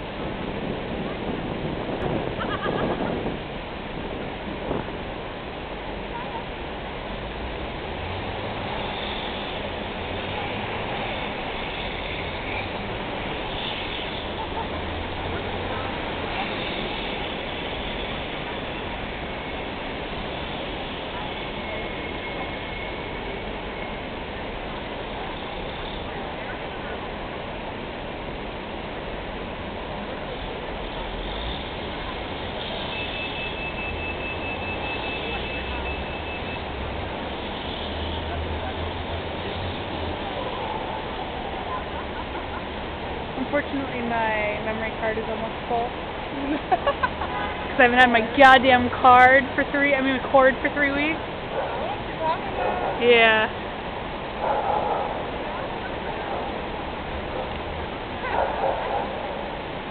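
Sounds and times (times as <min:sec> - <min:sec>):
distant traffic rumble: 0:00.0 - 0:59.9
faint voices: 0:38.2 - 0:46.8, 0:47.5 - 0:53.6, 0:54.8 - 0:58.6.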